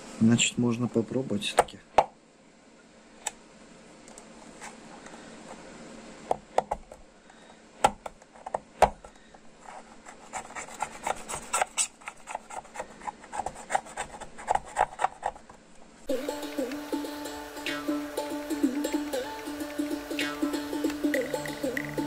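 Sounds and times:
music: 16.1s - 22.0s.

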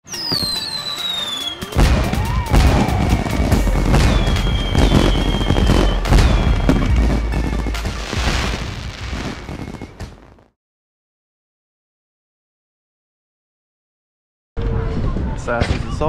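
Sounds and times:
fireworks whistling: 0.0s - 10.5s
fireworks booming and banging: 0.1s - 10.5s
intro music: 1.1s - 10.0s.

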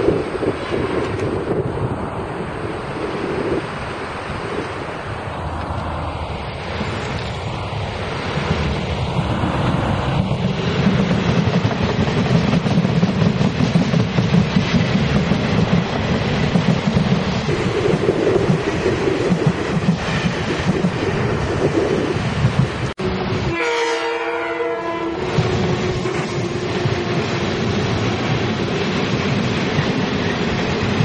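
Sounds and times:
train passing with clattering wheels: 0.0s - 31.0s
locomotive horn: 23.0s - 27.2s.

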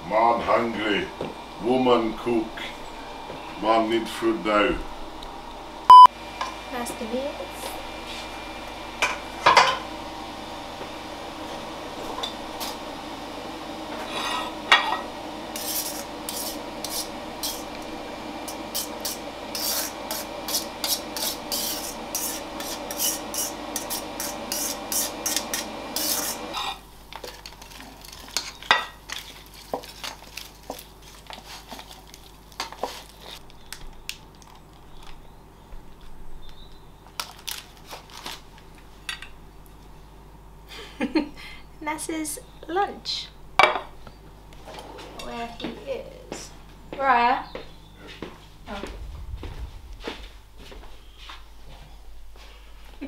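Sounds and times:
steady hum: 0.0s - 27.2s, 38.3s - 53.0s.

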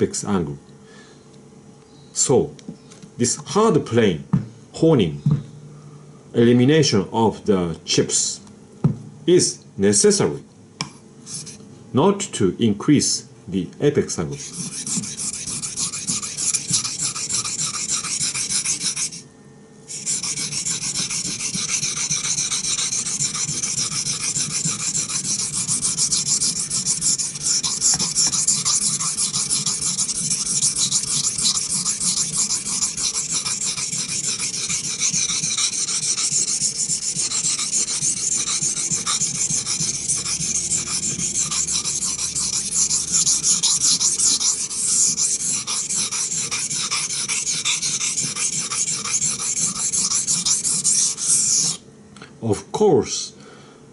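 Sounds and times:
knife grinding on whetstone: 14.4s - 19.2s, 19.9s - 51.8s.

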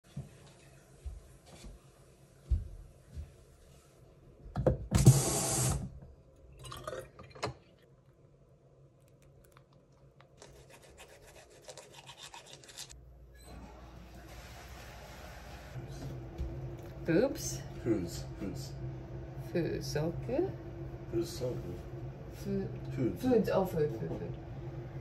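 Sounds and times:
rubbing and scrubbing: 10.4s - 13.0s
toothbrush scrubbing: 10.4s - 13.0s.

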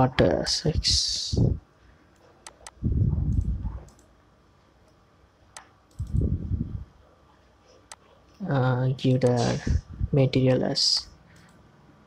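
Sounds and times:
computer mouse clicks: 2.2s - 4.1s, 5.5s - 6.3s, 11.3s - 11.6s.

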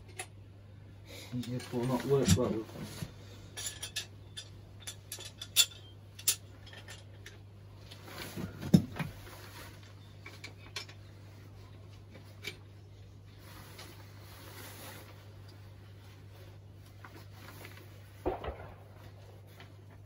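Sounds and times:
metallic clinks of tools: 3.6s - 7.4s.

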